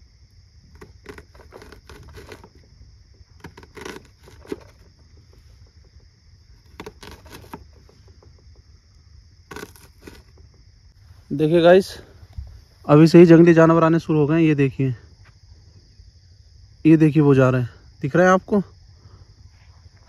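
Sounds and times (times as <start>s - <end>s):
high insect chirr: 0.0s - 20.0s
knife cutting an onion: 0.7s - 2.6s, 3.4s - 4.9s, 6.6s - 8.0s, 9.5s - 10.4s.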